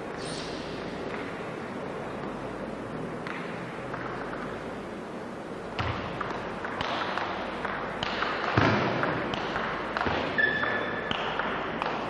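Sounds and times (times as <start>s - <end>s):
table tennis ball hits: 3.2s - 4.6s, 5.7s - 12.0s.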